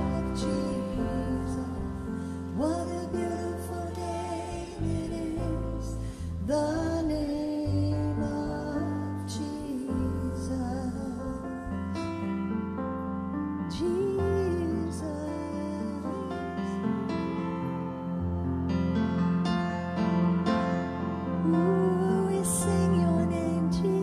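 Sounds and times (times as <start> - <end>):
women singing long notes: 0.0 - 11.2.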